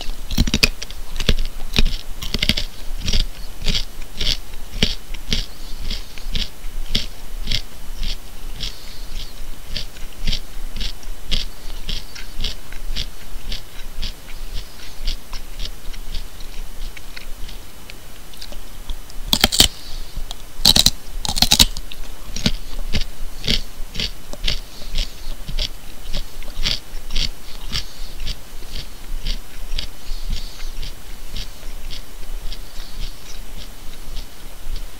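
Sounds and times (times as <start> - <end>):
person chewing raw carrot: 0.0 - 34.9.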